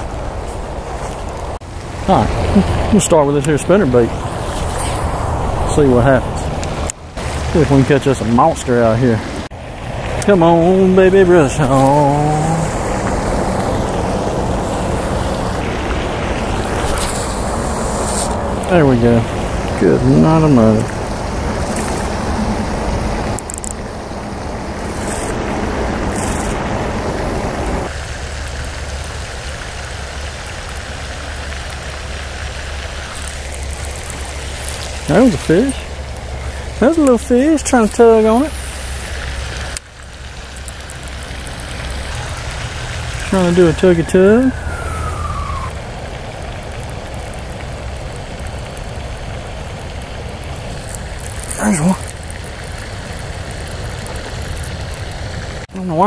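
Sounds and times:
low rumble: 0:00.0 - 0:36.8, 0:38.5 - 0:55.7
fountain water splashing: 0:00.0 - 0:56.0
steady hiss: 0:00.0 - 0:56.0
fishing reel spool whirring: 0:24.7 - 0:26.7.

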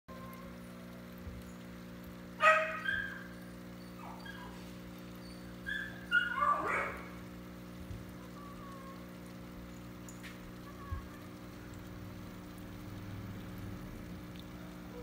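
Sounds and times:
steady low hum: 0:00.1 - 0:15.0
dog yipping: 0:02.4 - 0:07.2.

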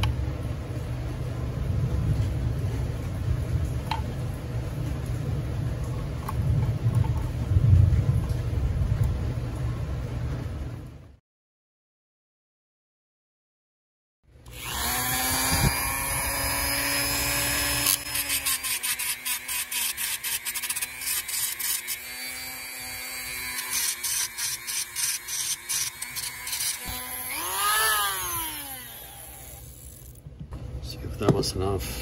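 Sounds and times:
rotary tool whining: 0:14.4 - 0:30.2
grinding stone on metal screw: 0:14.6 - 0:30.2.

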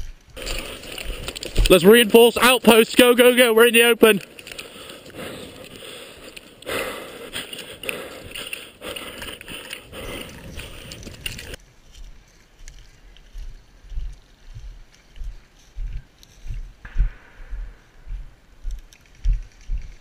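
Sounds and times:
running footsteps on dry ground: 0:00.0 - 0:20.0
low thumps: 0:16.8 - 0:20.0.

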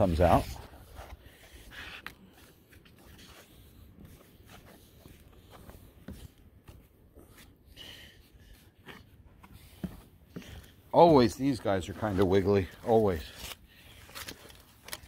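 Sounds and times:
glove brushing wooden railing: 0:00.0 - 0:14.1
footsteps on wooden boards: 0:02.5 - 0:12.8.

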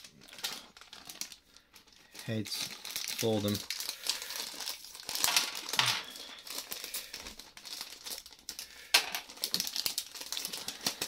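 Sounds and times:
plastic bag crinkling and tearing: 0:00.0 - 0:11.0.

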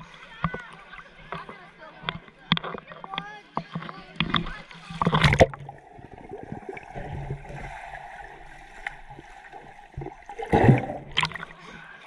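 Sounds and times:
running and splashing water: 0:03.8 - 0:12.0.

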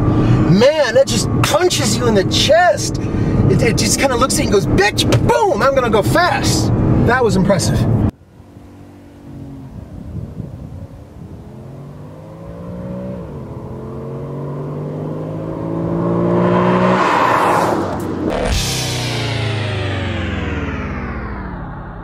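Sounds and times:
tyre and exhaust rush: 0:00.0 - 0:22.0
car engine accelerating past: 0:11.0 - 0:22.0.

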